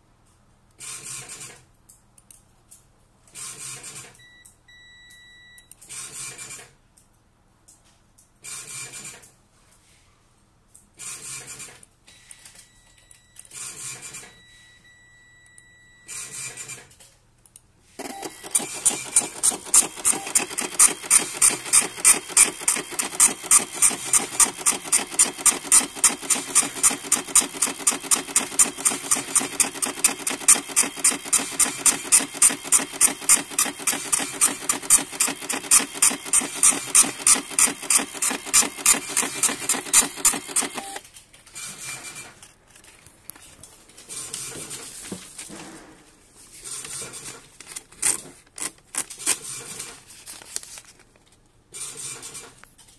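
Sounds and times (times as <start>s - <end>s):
dot-matrix printer printing: 18.0s - 41.0s.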